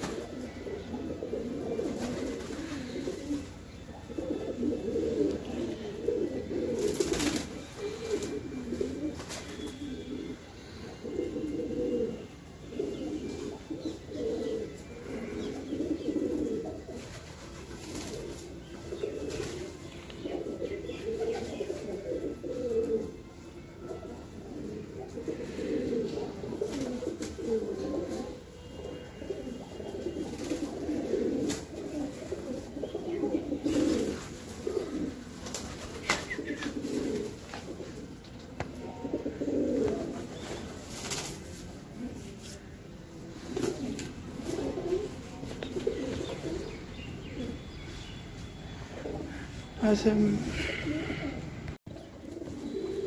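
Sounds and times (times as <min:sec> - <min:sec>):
pigeons cooing: 0:00.0 - 0:49.8, 0:50.4 - 0:53.0.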